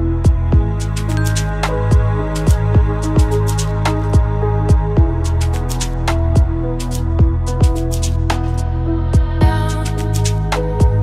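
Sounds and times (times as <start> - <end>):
electronic music: 0.0 - 11.0.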